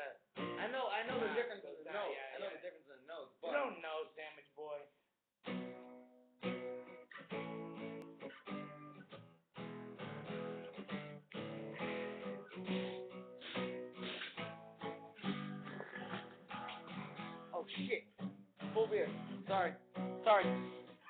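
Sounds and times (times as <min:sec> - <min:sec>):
acoustic guitar strumming: 0:00.4 - 0:01.4, 0:05.4 - 0:21.0.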